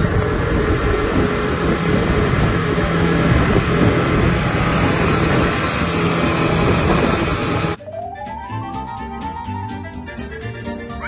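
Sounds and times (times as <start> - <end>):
outboard motor running at high speed: 0.0 - 7.8
water rushing from boat hull: 0.0 - 7.8.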